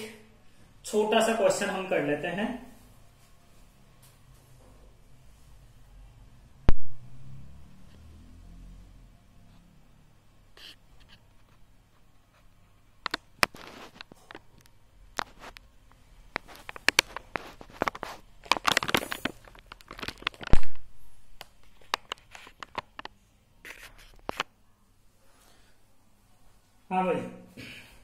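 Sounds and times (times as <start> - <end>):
rustling and crinkling handling noise: 10.6 - 24.6.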